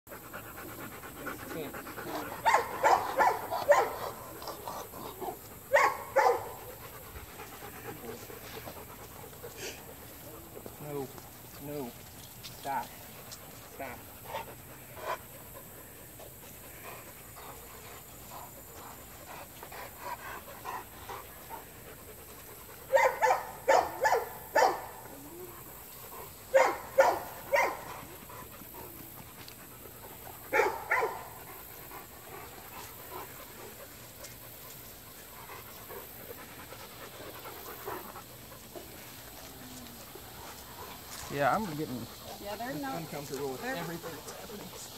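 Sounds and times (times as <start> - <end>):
dogs panting: 0.1 - 44.9
short loud dog barks: 22.9 - 24.9.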